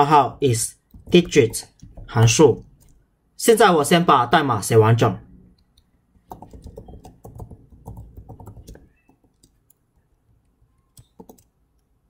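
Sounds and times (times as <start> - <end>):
typing on computer keyboard: 5.6 - 10.1, 10.8 - 11.9.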